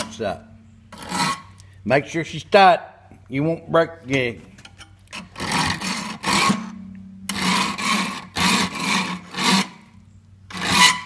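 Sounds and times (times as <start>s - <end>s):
file rasping on metal: 1.0s - 1.5s, 5.2s - 6.6s, 7.3s - 9.8s, 10.5s - 11.0s.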